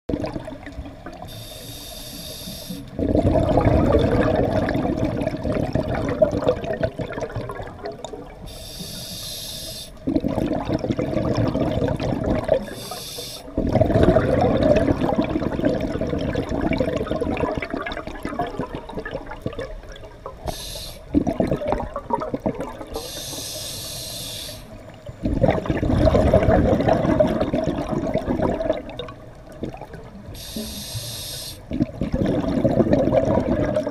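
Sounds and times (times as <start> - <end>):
exhaled bubbles rushing: 0.1 - 1.3, 2.9 - 8.5, 10.0 - 12.9, 13.5 - 20.5, 21.1 - 23.1, 24.8 - 30.3, 31.7 - 33.9
hissing regulator inhalations: 1.3 - 3.0, 8.4 - 10.0, 12.6 - 13.6, 20.4 - 21.1, 22.9 - 24.8, 30.3 - 31.7.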